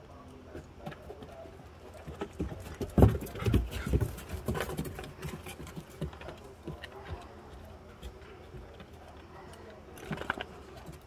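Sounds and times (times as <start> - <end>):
dog claws clicking on wooden deck: 0.5 - 9.0.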